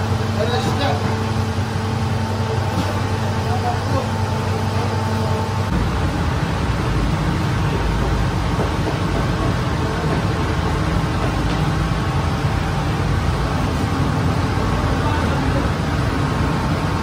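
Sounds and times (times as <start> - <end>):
bakery machinery humming: 0.0 - 17.0.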